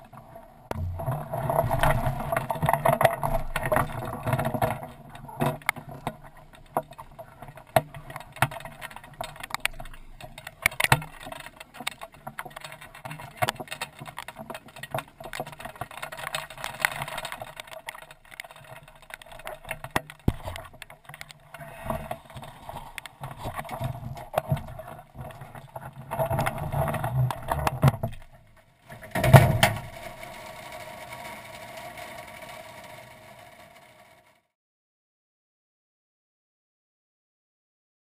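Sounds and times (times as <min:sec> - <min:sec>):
boat gear knocking and rattling: 0:00.7 - 0:30.2.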